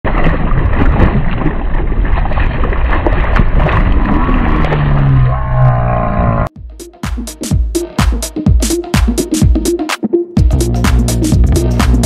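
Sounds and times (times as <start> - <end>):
fish thrashing and splashing: 0.0 - 5.3
low droning tone: 3.5 - 6.6.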